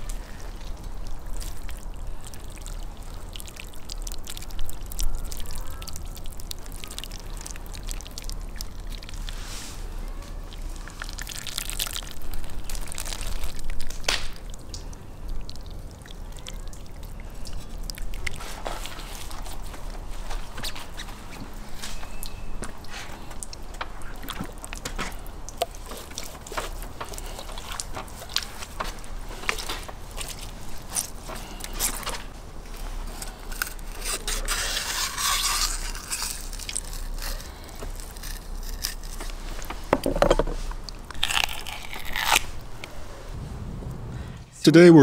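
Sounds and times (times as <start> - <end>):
knife scraping fish skin: 33.2 - 39.4.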